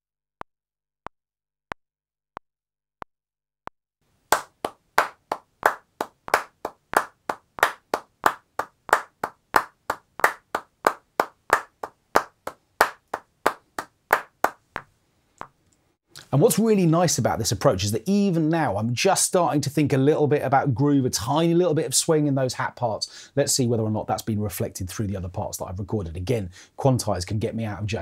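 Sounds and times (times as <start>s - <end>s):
hand claps: 4.3s - 14.9s.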